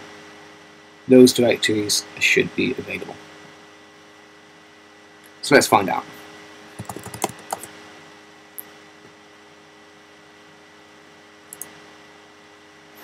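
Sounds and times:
faint steady hum: 0:00.0 - 0:13.0
computer keyboard keystrokes: 0:06.8 - 0:07.7.

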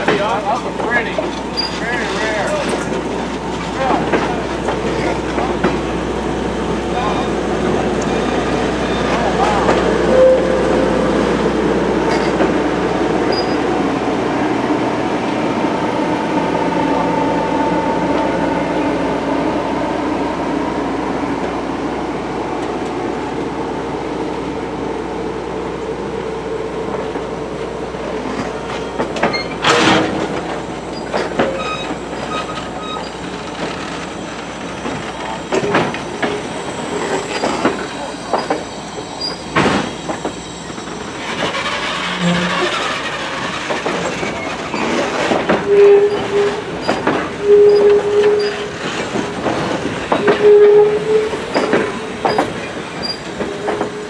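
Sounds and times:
wheels clacking over rail joints: 0:00.0 - 0:10.2, 0:10.9 - 0:13.9, 0:28.0 - 0:54.0
train wheels rumbling and squealing: 0:00.0 - 0:54.0.

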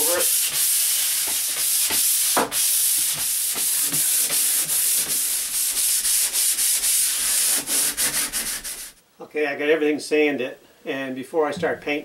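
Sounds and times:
sandpaper rubbing drywall: 0:00.0 - 0:09.0.

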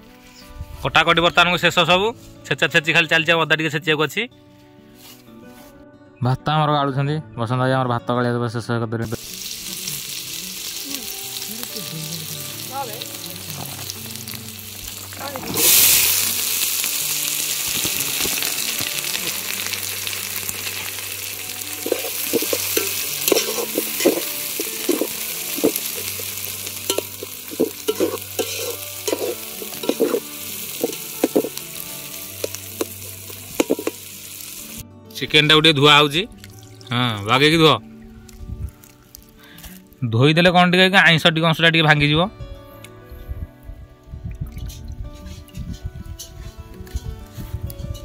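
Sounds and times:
onions sizzling in hot oil: 0:09.1 - 0:34.8
spatula scraping a pot: 0:21.8 - 0:26.1, 0:26.9 - 0:31.6.

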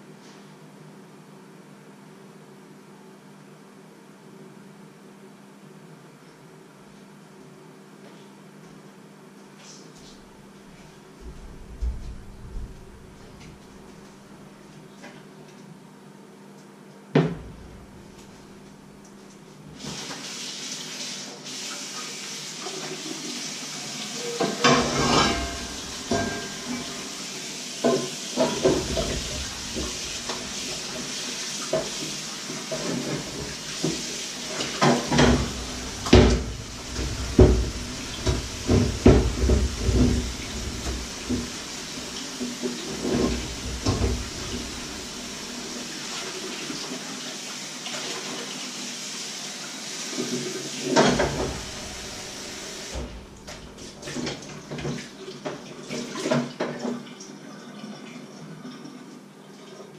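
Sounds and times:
kitchen tap running: 0:19.7 - 0:57.0
dishes and pots clattering: 0:24.2 - 0:27.1, 0:27.8 - 0:30.4, 0:32.7 - 0:41.6, 0:50.9 - 0:51.7.

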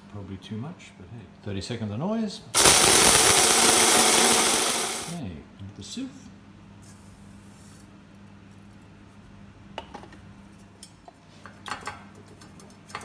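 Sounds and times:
flour pouring with soft hiss: 0:02.6 - 0:05.2.

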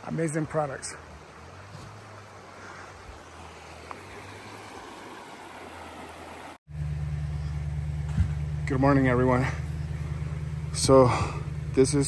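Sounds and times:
stream flowing: 0:00.0 - 0:06.6
low engine hum: 0:00.9 - 0:12.0.

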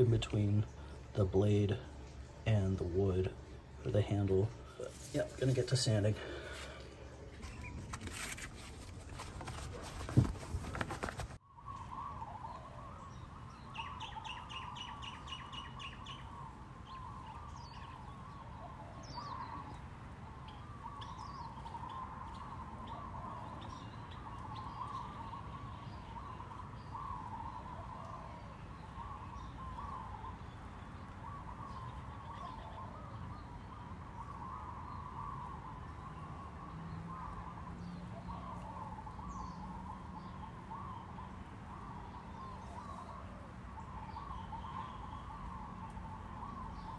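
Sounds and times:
low steady hum: 0:00.0 - 0:10.7
birds chirping and twittering: 0:00.0 - 0:46.9
bird trill: 0:11.4 - 0:46.9.

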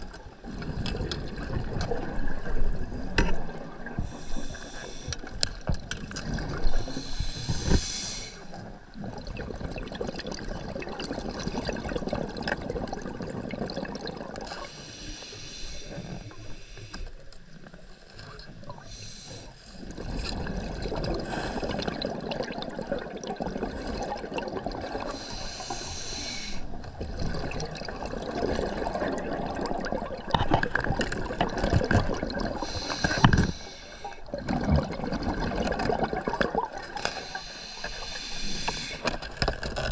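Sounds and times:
hissing regulator inhalation: 0:04.0 - 0:05.3, 0:06.8 - 0:08.6, 0:14.6 - 0:17.1, 0:25.1 - 0:26.7, 0:32.6 - 0:34.2, 0:36.9 - 0:39.1
gurgling exhaust bubbles: 0:26.8 - 0:38.0.

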